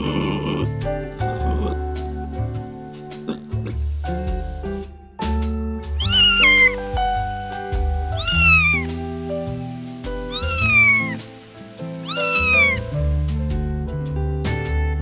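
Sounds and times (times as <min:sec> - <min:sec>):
background music: 0:00.0 - 0:15.0
cat meowing: 0:05.9 - 0:07.0, 0:08.0 - 0:09.0, 0:10.2 - 0:11.3, 0:12.0 - 0:13.0.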